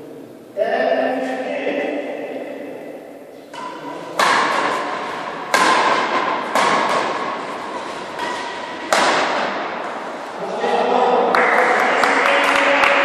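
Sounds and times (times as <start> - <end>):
racket striking shuttlecock: 3.5 - 10.0.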